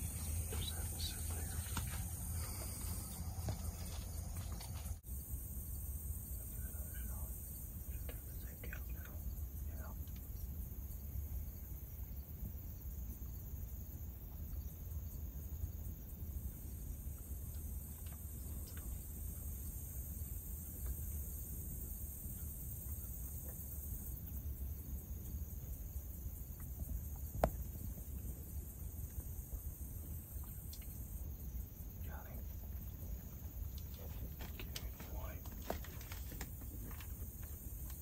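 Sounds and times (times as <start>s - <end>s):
crickets and insects chirring: 0.0s - 38.0s.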